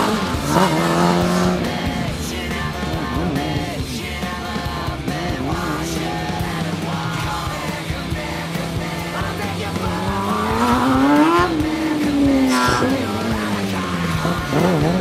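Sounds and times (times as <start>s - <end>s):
race car engine accelerating: 0.0s - 15.0s
rock music with singing: 0.0s - 15.0s.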